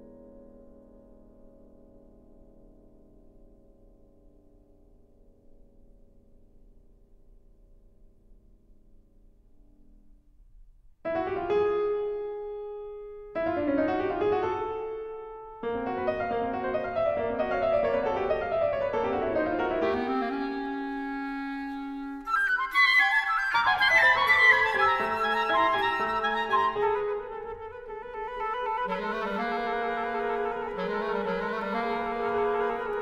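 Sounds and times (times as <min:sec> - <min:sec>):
clarinet quick high figures: 0:19.8 - 0:33.0
flute quick high figures: 0:20.0 - 0:33.0.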